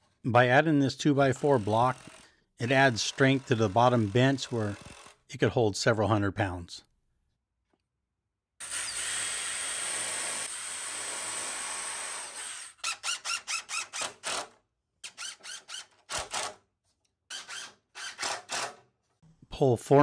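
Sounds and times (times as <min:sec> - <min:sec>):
cordless drill into wood: 0:01.4 - 0:05.3, 0:08.6 - 0:16.6, 0:17.3 - 0:18.8
impact driver driving screw: 0:08.6 - 0:16.6, 0:17.3 - 0:18.8.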